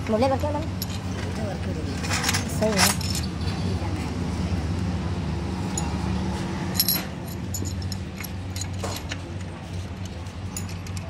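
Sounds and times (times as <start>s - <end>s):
metallic clinks of engine parts: 0.2s - 3.7s, 5.7s - 6.1s, 6.7s - 11.0s.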